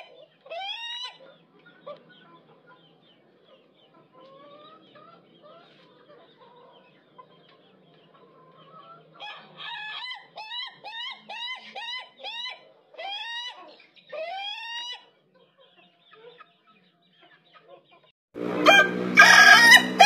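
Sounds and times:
chickens clucking: 0:00.0 - 0:20.0
rooster laughing crow: 0:18.6 - 0:20.0.

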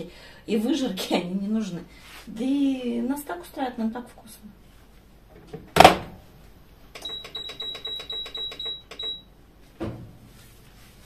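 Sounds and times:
short high beeps: 0:07.0 - 0:09.3.

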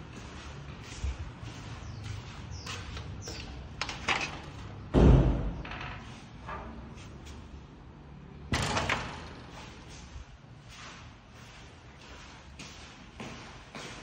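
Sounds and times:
metal door banging: 0:03.8 - 0:06.8, 0:08.5 - 0:09.6.

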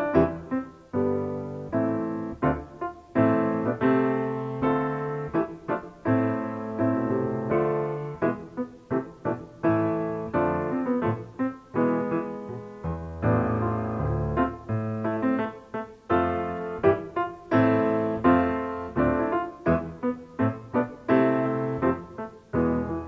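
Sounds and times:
solo piano: 0:00.0 - 0:23.0.

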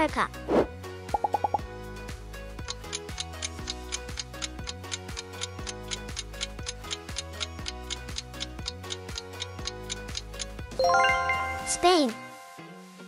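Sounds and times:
clock ticking: 0:02.7 - 0:10.5.

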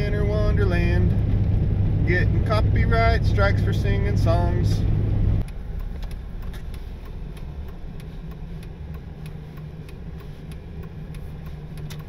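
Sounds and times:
truck engine and tyres rumbling: 0:00.0 - 0:12.0
faint ticks: 0:05.4 - 0:12.0.

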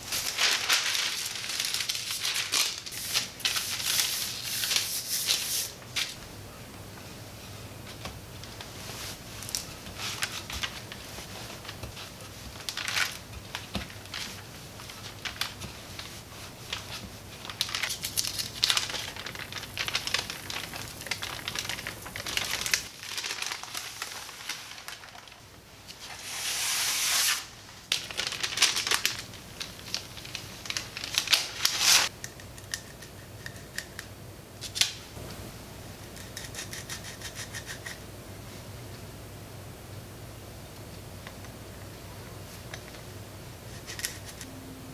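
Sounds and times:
paper sheet rustling: 0:00.0 - 0:06.2, 0:08.5 - 0:32.1
parchment paper crinkling: 0:00.0 - 0:06.2, 0:08.4 - 0:26.6, 0:27.2 - 0:32.1.

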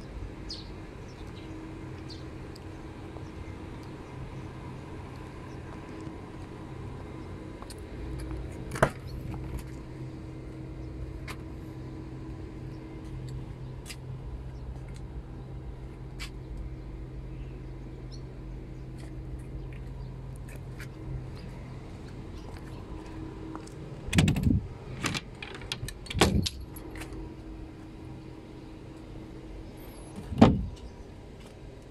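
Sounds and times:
steady low hum: 0:00.0 - 0:31.9
cargo door clunks and rattling: 0:24.1 - 0:26.7, 0:30.2 - 0:30.8.

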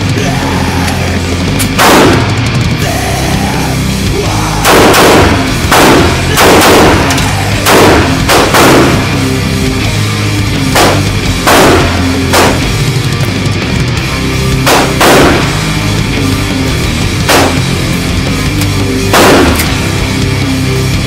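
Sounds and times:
heavy metal music: 0:00.0 - 0:21.0
loud pistol shots echoing: 0:01.7 - 0:02.4, 0:04.6 - 0:09.3, 0:10.7 - 0:12.9, 0:14.6 - 0:15.7, 0:17.2 - 0:17.8, 0:19.1 - 0:19.9.

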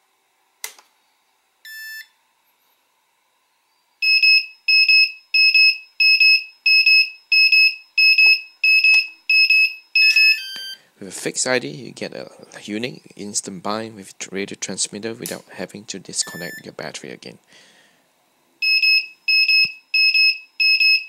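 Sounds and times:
high alarm beeps: 0:04.0 - 0:10.8, 0:16.2 - 0:16.6, 0:18.6 - 0:21.0.

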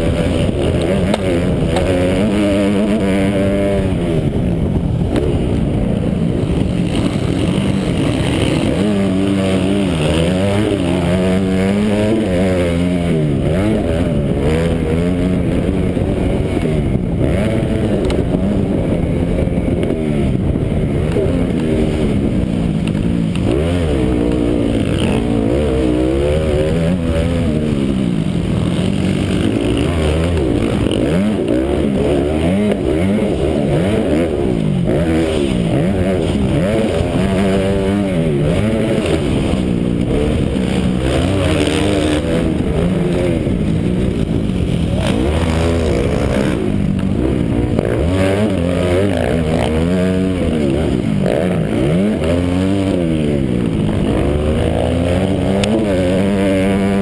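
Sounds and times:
motocross bike engine revving: 0:00.0 - 0:57.0.

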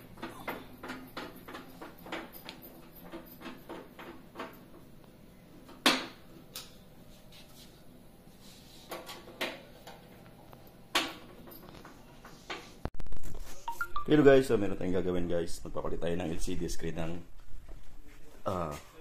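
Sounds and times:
hard objects clicking and knocking: 0:00.0 - 0:05.0.

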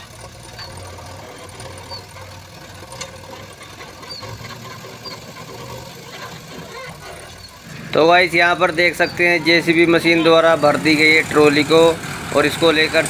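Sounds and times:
soil tipping into trailer: 0:00.0 - 0:09.3
diesel engine running: 0:00.0 - 0:13.0.

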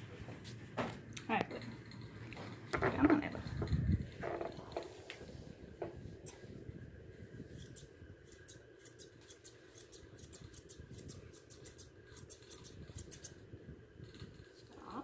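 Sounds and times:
shears snipping through fur: 0:07.5 - 0:13.4.

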